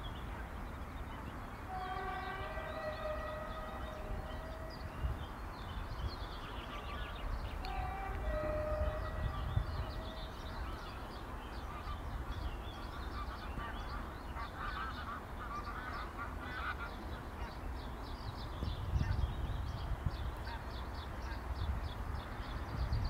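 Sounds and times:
distant train horn: 0:01.6 - 0:05.7, 0:06.4 - 0:12.2.

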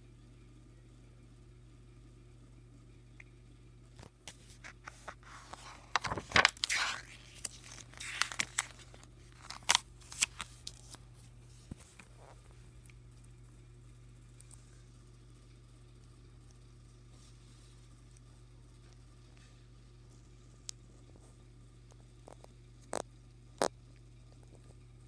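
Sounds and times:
paper pages turning: 0:04.0 - 0:12.2.

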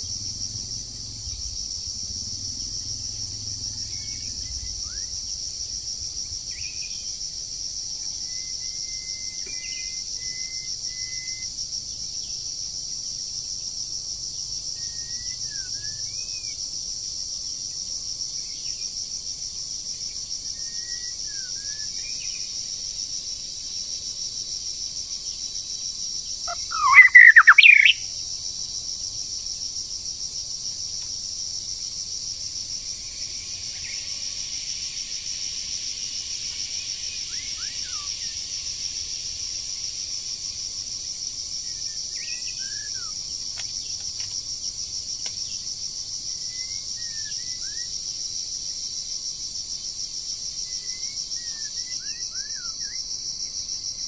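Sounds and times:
cicadas droning: 0:00.0 - 0:54.0
small birds chirping: 0:26.5 - 0:28.0.

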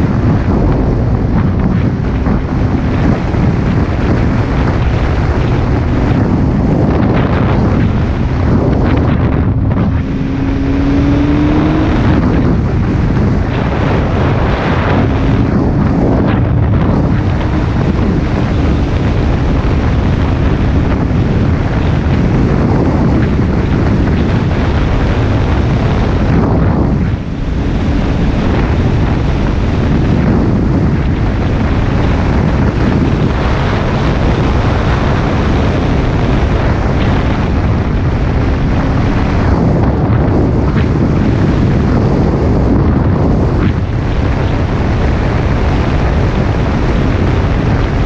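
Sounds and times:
motorcycle engine drone: 0:00.0 - 0:48.0
wind buffeting microphone: 0:00.0 - 0:48.0.

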